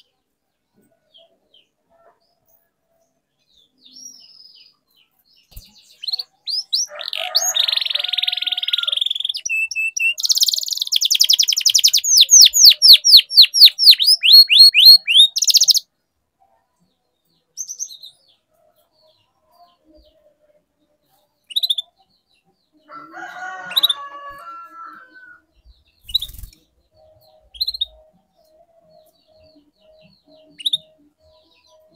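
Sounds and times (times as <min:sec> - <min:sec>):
canary singing: 0:05.4 - 0:15.9, 0:21.4 - 0:22.2, 0:22.8 - 0:31.9.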